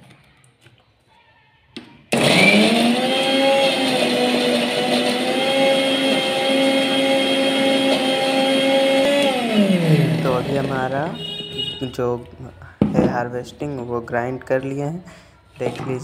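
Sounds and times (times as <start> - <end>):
mixer grinder motor whine: 2.1 - 11.7.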